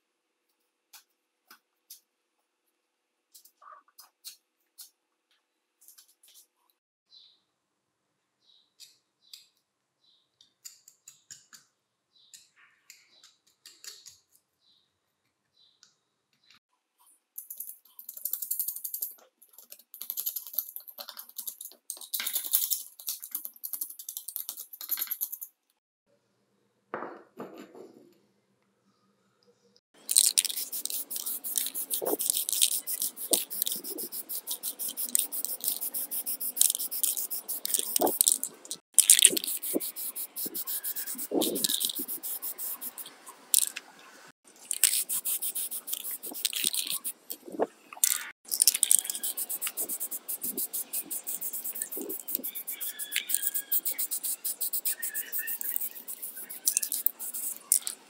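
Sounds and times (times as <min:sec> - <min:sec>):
metal scraper scraping paint: 0:39.0 - 0:43.1.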